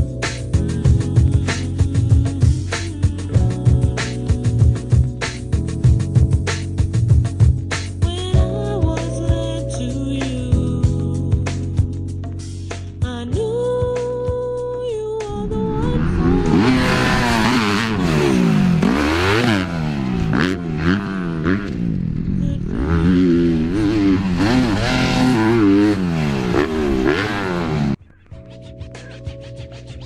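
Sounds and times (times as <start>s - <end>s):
motorcycle engine revving: 15.3s - 28.0s.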